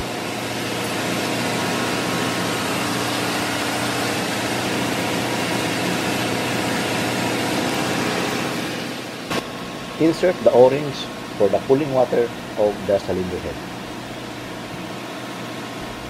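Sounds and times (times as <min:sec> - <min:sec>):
engine room machinery hiss and hum: 0:00.0 - 0:16.0.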